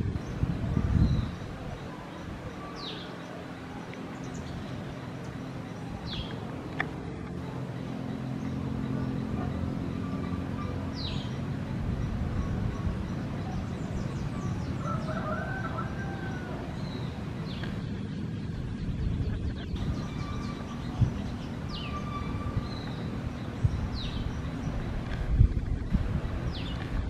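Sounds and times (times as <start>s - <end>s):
low rumble: 16.2s - 27.0s.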